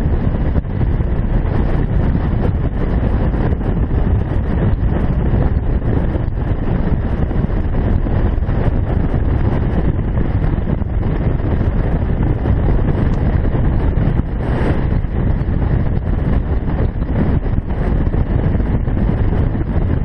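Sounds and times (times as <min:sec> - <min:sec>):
motorcycle running: 0:00.0 - 0:20.0
wind buffeting microphone: 0:00.0 - 0:20.0.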